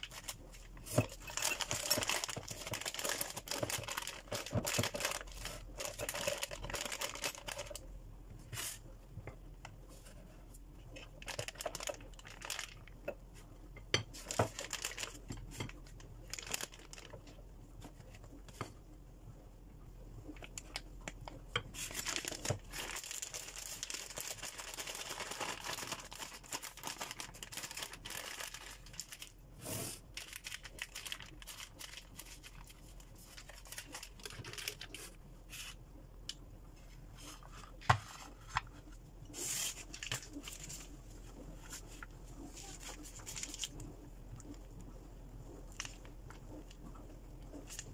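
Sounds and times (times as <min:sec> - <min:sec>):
plastic piping bag crinkling: 0:00.0 - 0:07.8, 0:10.9 - 0:13.1, 0:14.1 - 0:18.2, 0:20.3 - 0:35.2, 0:39.7 - 0:44.6, 0:45.5 - 0:47.9.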